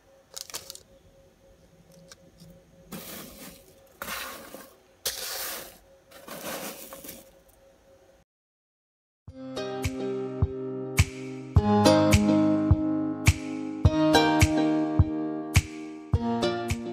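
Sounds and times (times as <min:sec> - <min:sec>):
hand rustling through granola: 0:02.9 - 0:07.4.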